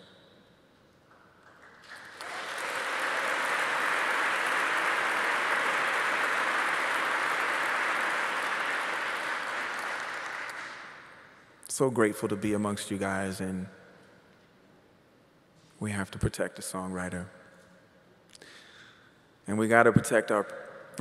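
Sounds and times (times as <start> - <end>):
audience applauding: 1.4 - 11.2.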